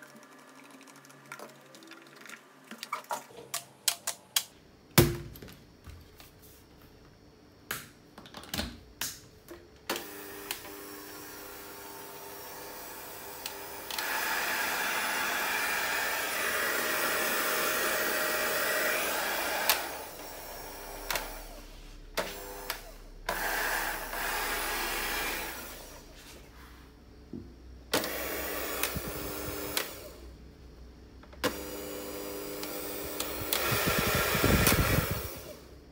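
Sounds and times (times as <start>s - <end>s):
hand mixer motor running: 10.0s - 21.6s, 22.2s - 26.1s, 28.0s - 30.2s, 31.4s - 35.8s.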